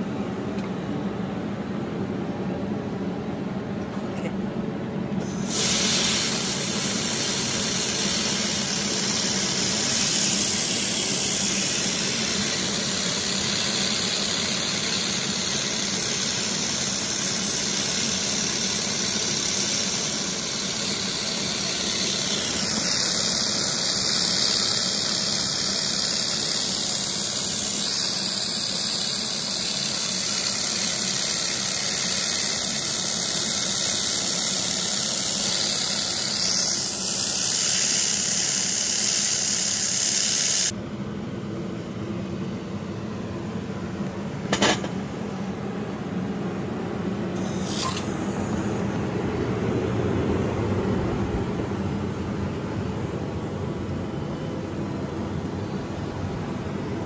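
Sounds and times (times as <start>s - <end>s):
laser welder hissing: 5.2s - 40.8s, 47.3s - 49.0s.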